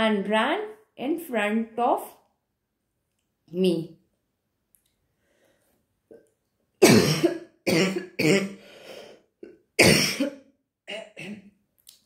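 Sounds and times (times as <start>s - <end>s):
person coughing: 6.8s - 8.6s, 9.4s - 11.5s.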